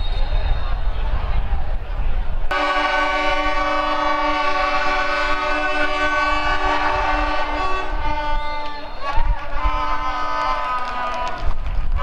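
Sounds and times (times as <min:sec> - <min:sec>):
loud chord of steady tones: 0:02.5 - 0:09.1.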